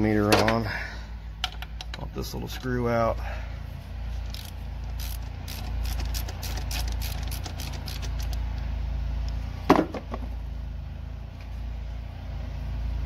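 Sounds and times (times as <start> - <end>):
hand ratchet clicking: 4.2 - 8.4.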